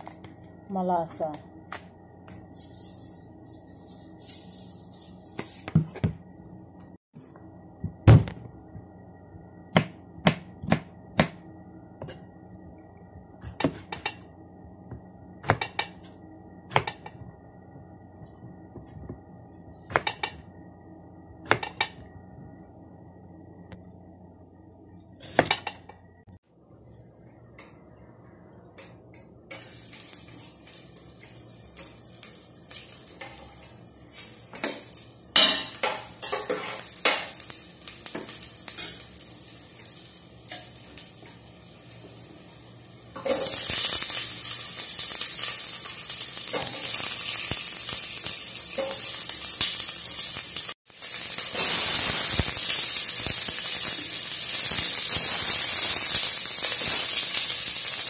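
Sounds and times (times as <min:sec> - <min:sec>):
garlic sizzling in hot oil: 0:29.6 - 0:58.0.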